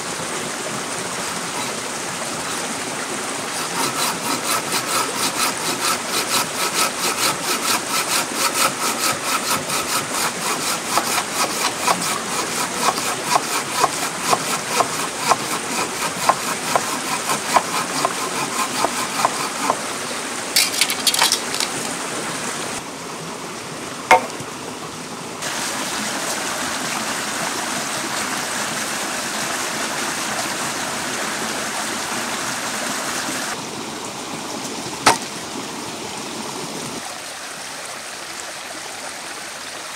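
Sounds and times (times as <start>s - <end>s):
running water: 0.0s - 39.9s
rhythmic rubbing strokes: 3.6s - 19.8s.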